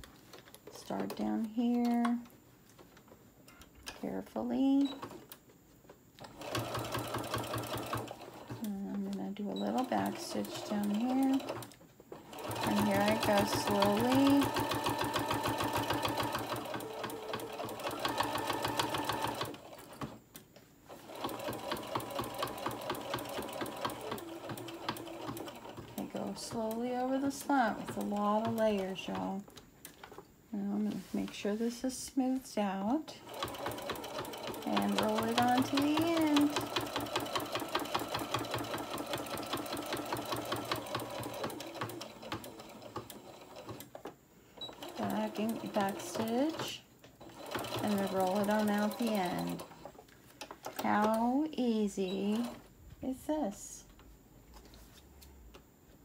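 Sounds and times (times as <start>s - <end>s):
sewing machine stitching: 6.2s - 20.2s, 20.9s - 29.4s, 33.2s - 50.0s, 50.6s - 52.7s.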